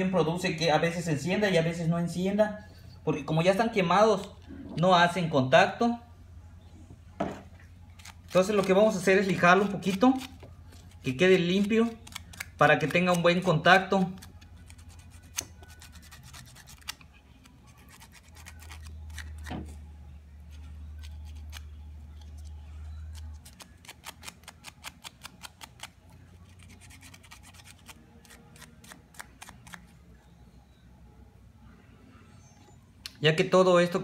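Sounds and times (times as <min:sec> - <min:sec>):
low steady hum: 0:00.0 - 0:34.0
sandpaper scratching metal: 0:14.7 - 0:17.0.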